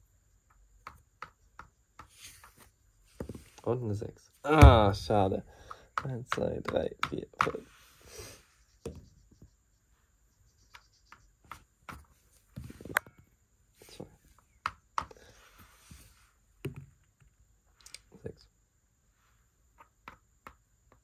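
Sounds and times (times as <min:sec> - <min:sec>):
game pieces clicking on board: 0:00.4 - 0:02.6, 0:05.6 - 0:07.6.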